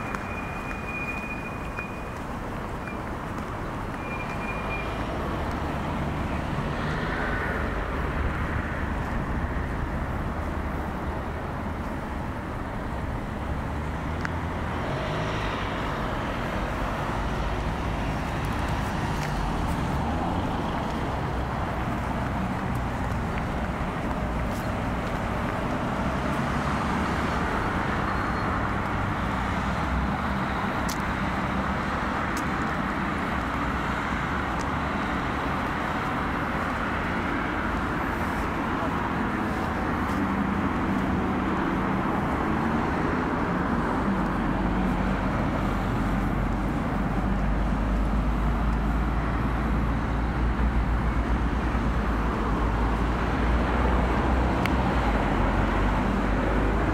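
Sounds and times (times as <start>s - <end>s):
road traffic noise: 0.0s - 56.9s.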